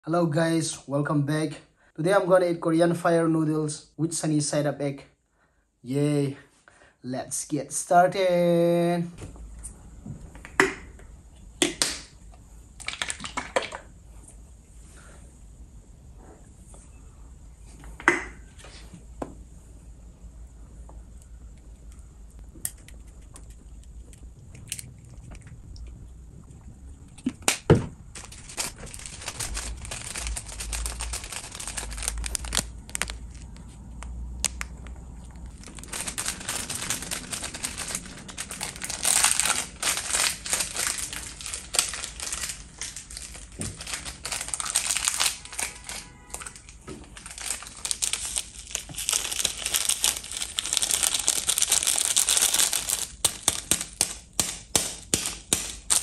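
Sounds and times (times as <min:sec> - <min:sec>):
crinkling plastic sachets: 0:27.2 - 0:56.0.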